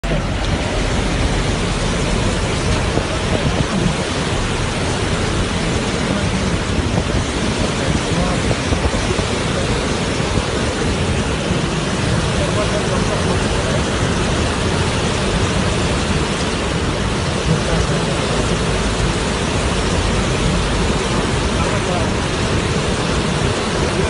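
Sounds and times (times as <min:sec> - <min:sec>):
floodwater rushing from spillway: 0:00.0 - 0:24.0.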